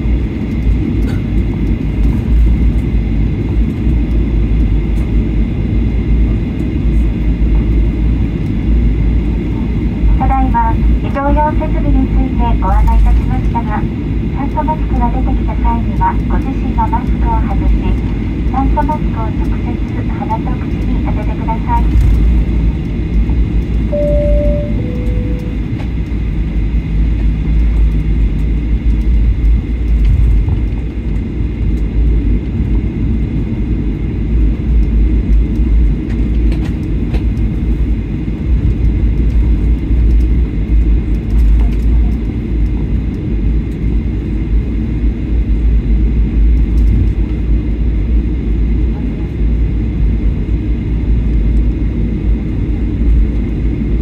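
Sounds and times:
aircraft engines rumbling: 0:00.0 - 0:54.0
two-note chime: 0:23.9 - 0:25.6.

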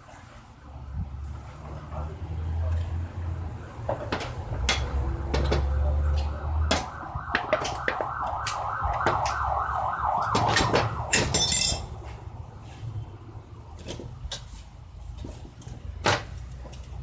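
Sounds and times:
wavering siren-like tone: 0:05.7 - 0:11.8
metal clinks and knocks: 0:10.6 - 0:12.0.

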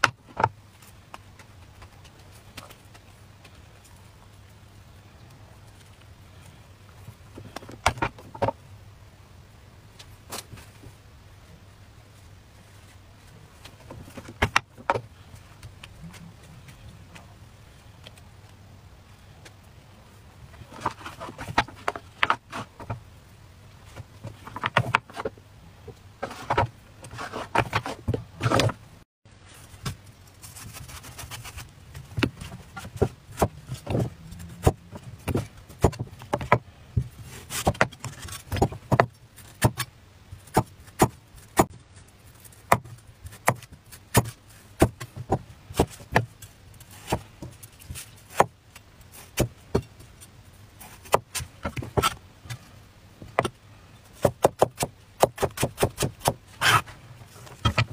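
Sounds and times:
rustling and clattering handling: 0:20.5 - 0:23.1.

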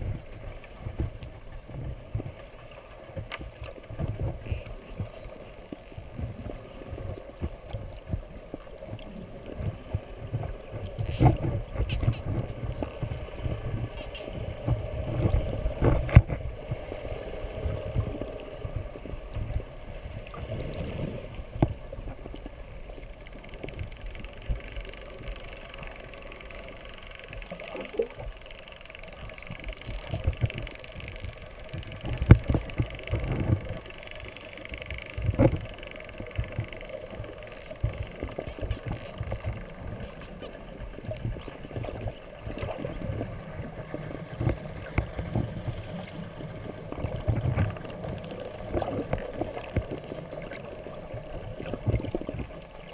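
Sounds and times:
low rumble of water: 0:00.0 - 0:52.9
dolphins whistling underwater: 0:04.4 - 0:15.6, 0:17.2 - 0:22.2, 0:31.9 - 0:52.9.

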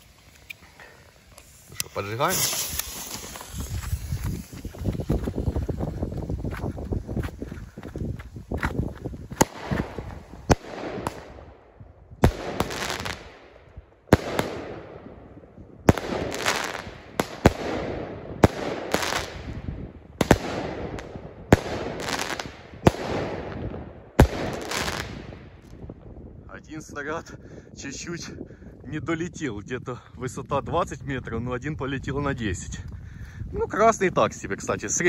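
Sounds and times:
crackle of bursting stars: 0:00.0 - 0:05.8
firework shots firing: 0:01.4 - 0:04.8, 0:09.3 - 0:11.5, 0:12.2 - 0:15.2, 0:15.9 - 0:25.6.

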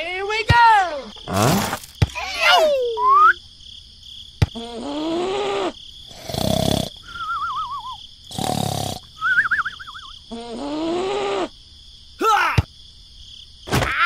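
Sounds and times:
cartoon snoring: 0:01.3 - 0:01.8, 0:04.6 - 0:07.2, 0:08.3 - 0:09.1, 0:10.3 - 0:11.5
snort: 0:01.3 - 0:01.8, 0:04.6 - 0:07.2, 0:08.3 - 0:09.1, 0:10.3 - 0:11.5
whistling breath out: 0:07.0 - 0:08.0, 0:09.2 - 0:10.1.

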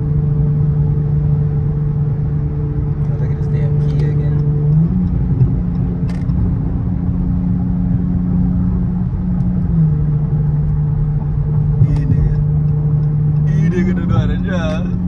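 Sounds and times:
car engine droning in cabin: 0:00.0 - 0:15.0
low road rumble: 0:00.0 - 0:15.0.

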